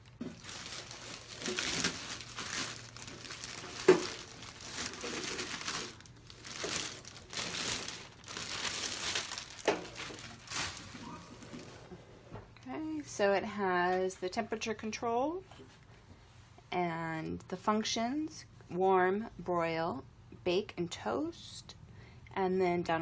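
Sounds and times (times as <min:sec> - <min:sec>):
plastic bag crinkling: 0:00.0 - 0:11.8.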